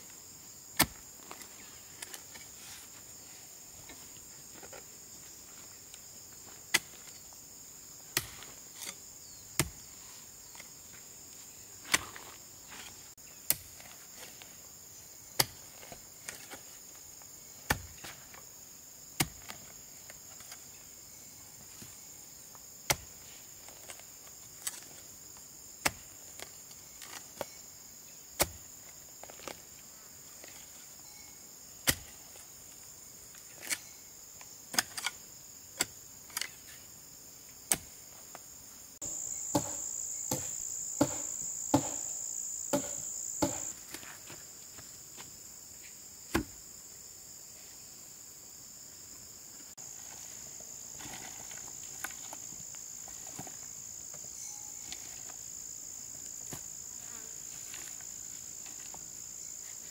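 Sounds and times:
insects chirring: 0.0s - 59.9s
sharp knocks: 39.0s - 43.8s.

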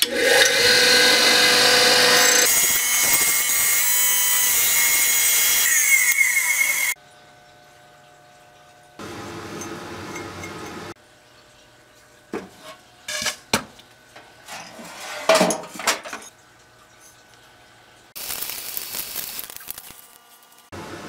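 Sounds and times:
steady hiss: 18.2s - 20.7s.

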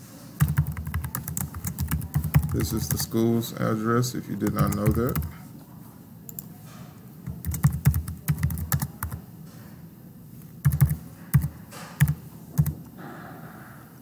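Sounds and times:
keyboard typing: 0.4s - 3.2s, 4.4s - 5.4s, 7.3s - 9.2s, 10.6s - 12.9s.

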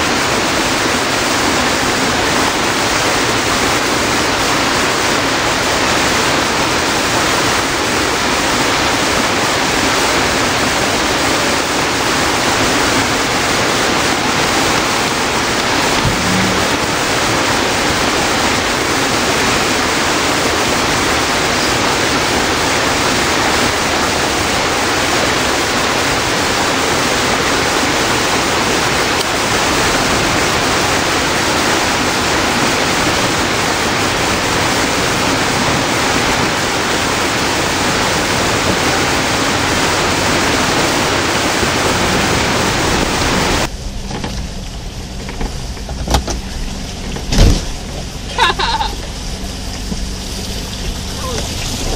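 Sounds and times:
creek rushing over stones: 0.0s - 43.7s
low rumble: 15.4s - 18.5s.

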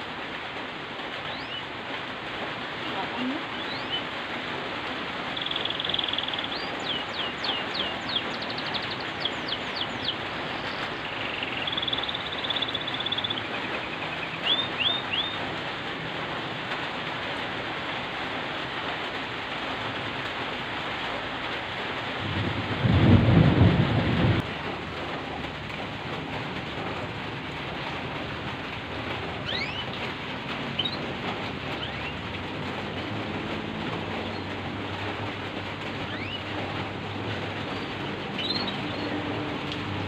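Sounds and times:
steady rain: 0.0s - 40.0s
bird trilling and chirping: 1.3s - 1.6s, 5.3s - 15.4s, 29.4s - 31.1s, 36.0s - 36.5s, 37.6s - 39.2s
loud low rumble: 22.2s - 25.0s.

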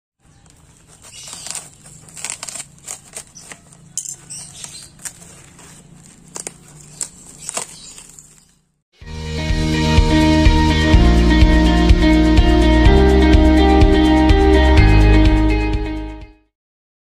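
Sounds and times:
tape peeling off cardboard: 0.3s - 8.6s.

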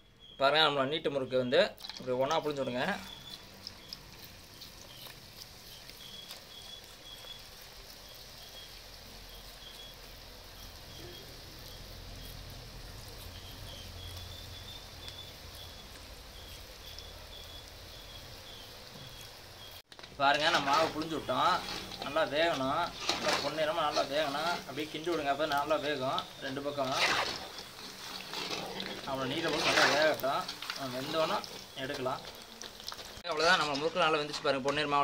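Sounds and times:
faint high chirp: 0.0s - 1.6s, 2.3s - 19.8s
dough deep-frying in oil: 0.0s - 35.0s.

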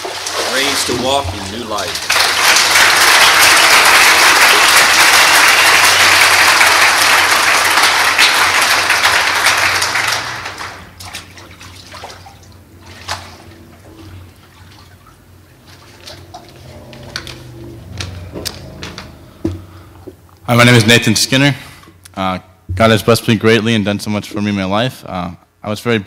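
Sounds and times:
water splashing and dripping: 0.0s - 2.6s, 10.2s - 19.0s
congregation applauding: 0.0s - 11.0s.

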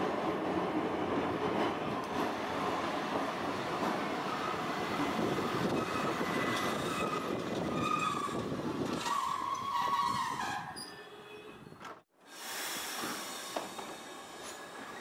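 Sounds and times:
tram wheels rumbling: 0.0s - 10.8s.

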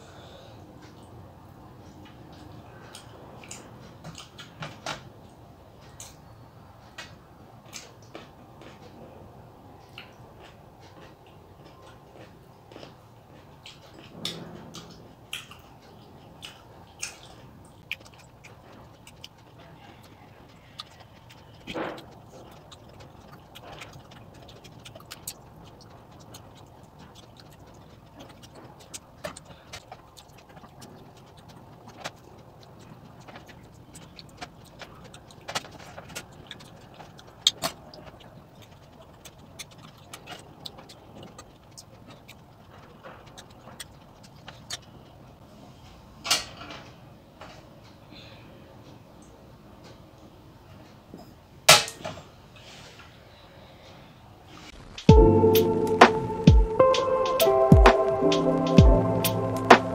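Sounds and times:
wet mouth chewing smacks: 13.6s - 44.9s
faint steady hiss: 52.0s - 59.9s.

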